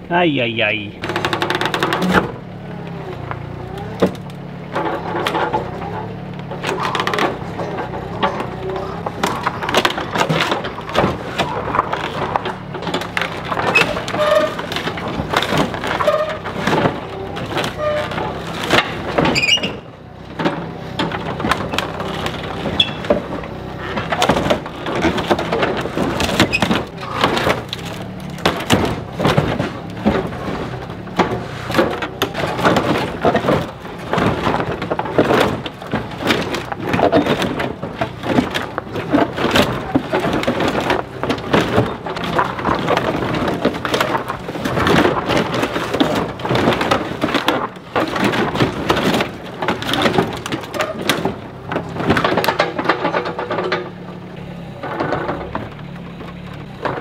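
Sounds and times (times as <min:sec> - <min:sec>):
excavator engine running: 0:00.0 - 0:57.0
metal clanks and rattles: 0:00.9 - 0:57.0.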